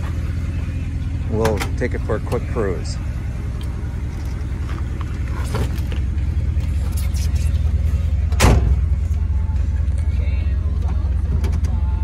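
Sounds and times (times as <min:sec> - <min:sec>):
car engine idling: 0:00.0 - 0:12.0
loud thump: 0:08.4 - 0:08.8.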